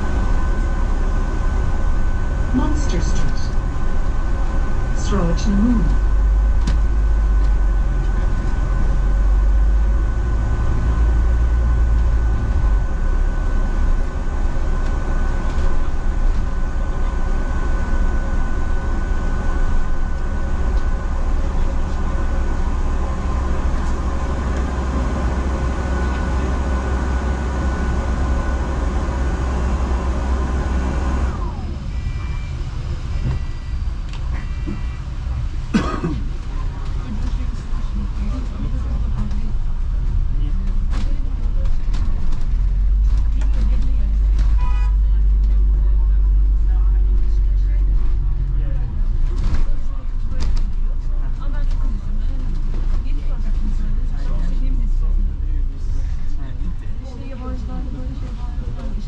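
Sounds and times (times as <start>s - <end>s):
thin steady whine: 0.0s - 36.1s
bus engine and road rumble: 0.0s - 59.0s
short beeps: 31.8s - 33.8s.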